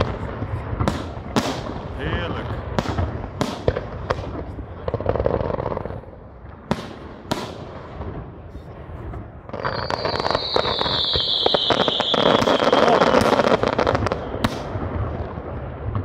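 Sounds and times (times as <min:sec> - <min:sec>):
dense firework crackling: 0:00.0 - 0:16.0
sharp firework bangs: 0:00.0 - 0:16.0
long falling whistle: 0:09.7 - 0:13.2.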